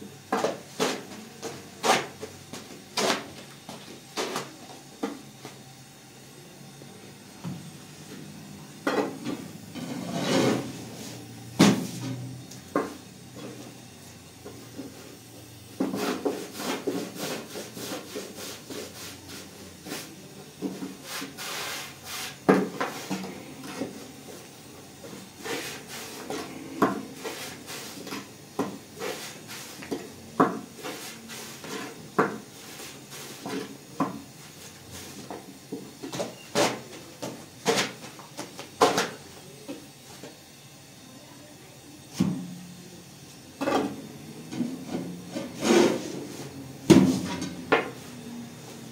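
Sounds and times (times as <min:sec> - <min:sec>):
objects knocking and scraping: 0:00.3 - 0:05.2, 0:08.8 - 0:10.9, 0:11.6 - 0:13.6, 0:15.8 - 0:18.4, 0:22.4 - 0:24.0, 0:25.1 - 0:34.3, 0:35.1 - 0:39.2, 0:43.6 - 0:48.0.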